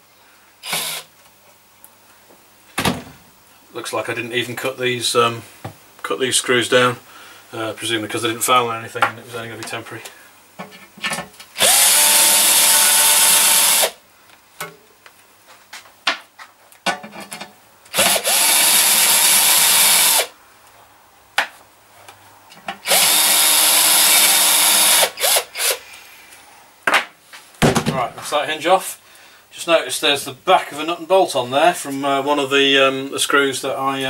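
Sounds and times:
cordless drill motor whine: 0:00.6 - 0:01.1, 0:11.6 - 0:14.0, 0:17.9 - 0:20.3, 0:22.8 - 0:25.8.

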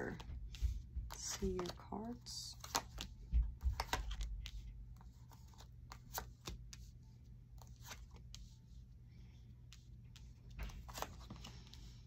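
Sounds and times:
cards flicking and tapping: 0:00.1 - 0:06.9.

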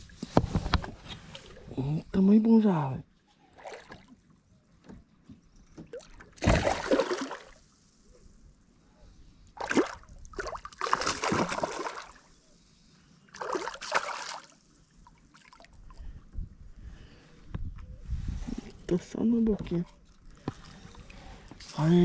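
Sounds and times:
fish splashing at water surface: 0:06.4 - 0:07.6, 0:09.6 - 0:12.2.

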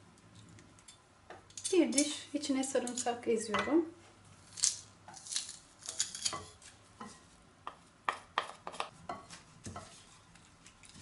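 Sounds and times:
wooden spoon scraping: 0:04.5 - 0:07.4, 0:08.1 - 0:11.0.

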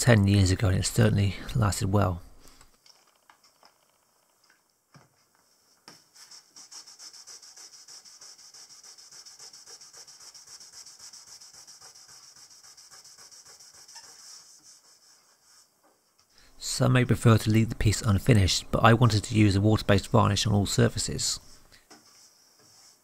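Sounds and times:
cloth rubbing on wood panel: 0:05.4 - 0:15.8, 0:21.9 - 0:23.0.

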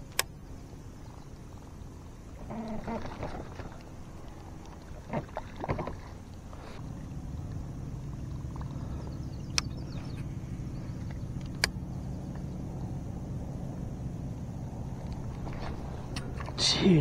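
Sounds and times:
sharp clicks: 0:00.0 - 0:00.4, 0:09.5 - 0:09.8, 0:11.0 - 0:12.5
low motor hum: 0:00.0 - 0:17.0.

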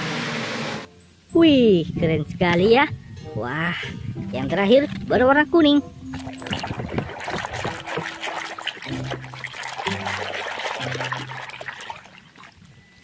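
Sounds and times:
water splashing: 0:06.0 - 0:12.7
foam bubbles crackling: 0:06.1 - 0:12.6
hand sloshing toy in water: 0:06.1 - 0:12.6.

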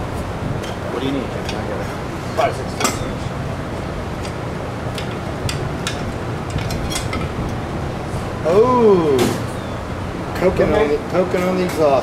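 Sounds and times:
low background hum: 0:00.0 - 0:12.0
hand tools clicking on metal: 0:04.2 - 0:07.6.

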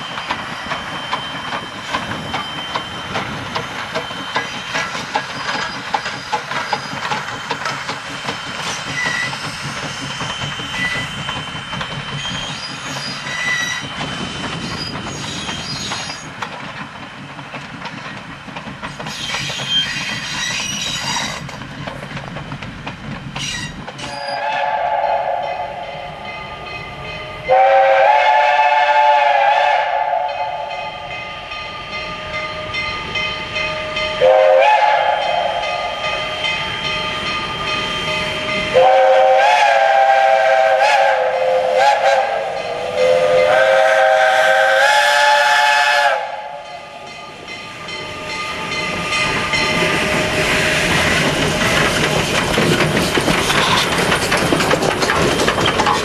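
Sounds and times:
steam locomotive chime whistle: 0:00.0 - 0:16.3, 0:23.5 - 0:51.1
train wheels rolling: 0:00.0 - 0:56.0.

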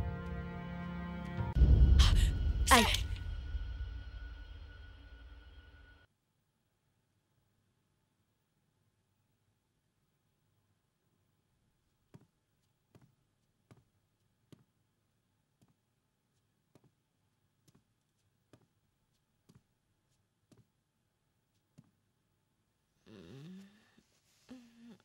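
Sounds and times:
faint slow footsteps: 0:11.8 - 0:20.8.

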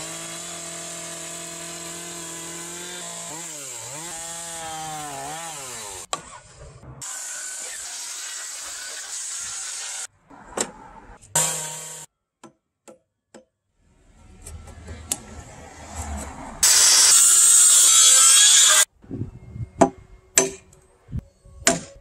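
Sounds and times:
circular saw cutting wood: 0:00.0 - 0:10.1, 0:11.4 - 0:12.1, 0:14.8 - 0:18.9.

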